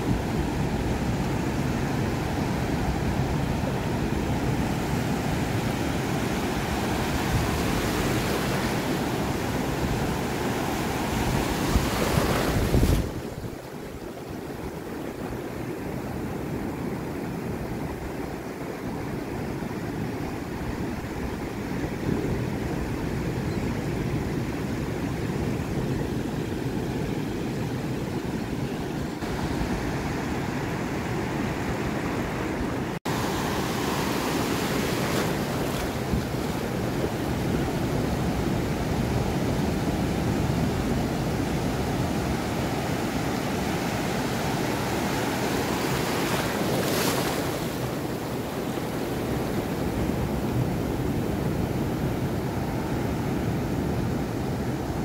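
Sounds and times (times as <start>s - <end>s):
wind buffeting microphone: 0.0s - 14.0s
ocean surf breaking: 0.4s - 13.8s, 29.2s - 55.0s.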